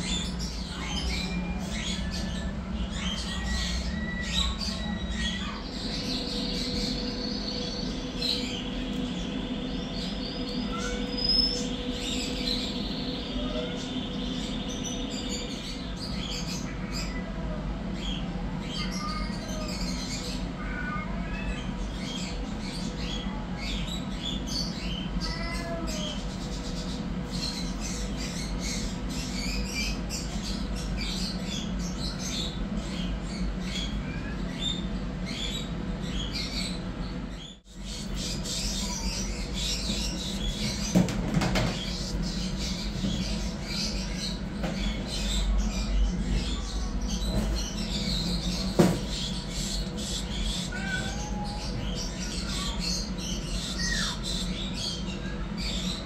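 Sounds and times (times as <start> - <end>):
steady low hum: 0.0 - 56.0
kittens mewing: 10.1 - 12.5, 25.2 - 26.3, 50.2 - 53.2.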